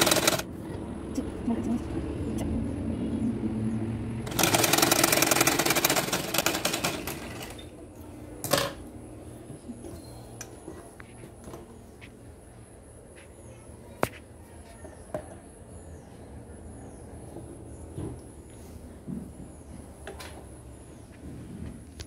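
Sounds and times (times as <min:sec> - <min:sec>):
sewing machine clattering: 0:00.0 - 0:00.4, 0:04.3 - 0:07.6.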